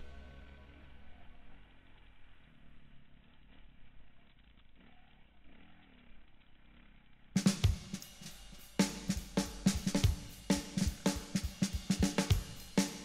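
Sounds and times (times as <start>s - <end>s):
faint dirt bike engine: 0.0s - 13.0s
music drum beat: 7.4s - 13.0s.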